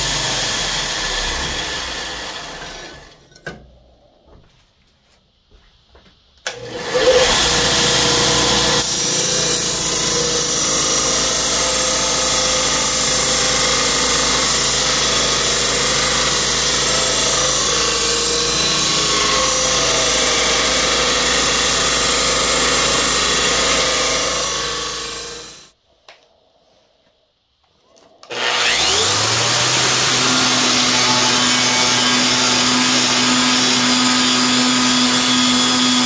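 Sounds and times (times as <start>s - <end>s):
belt grinder grinding steel: 6.5s - 25.8s, 28.2s - 36.0s.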